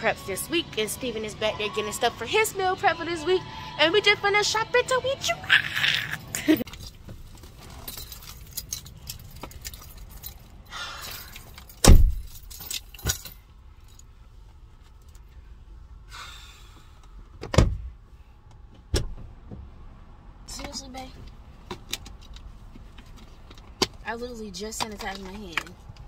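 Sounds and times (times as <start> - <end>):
small items jingling: 6.3 - 14.1.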